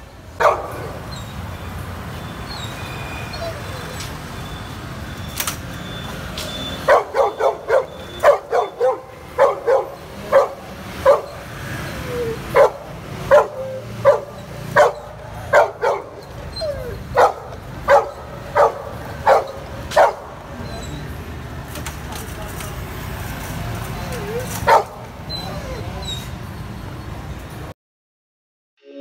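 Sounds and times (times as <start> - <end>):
dog barking: 0.4 - 1.0, 6.8 - 11.5, 12.4 - 16.3, 16.9 - 20.4, 24.6 - 25.1.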